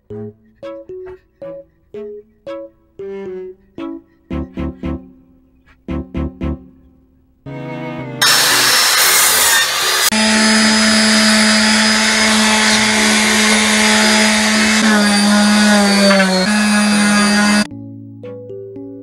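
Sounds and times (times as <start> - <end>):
orbital sander motor hum: 8.2 - 17.7
sandpaper rasping on wood: 8.2 - 17.7.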